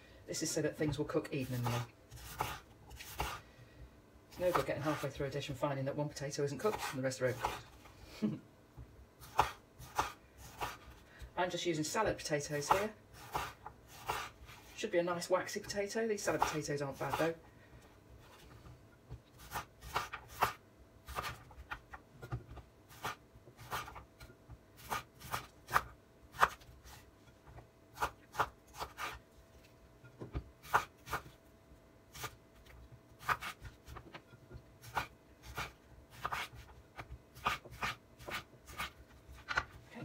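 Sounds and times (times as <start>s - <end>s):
slices scraping on board: 1.5s - 3.4s, 12.7s - 14.7s, 28.0s - 29.2s, 33.2s - 39.5s.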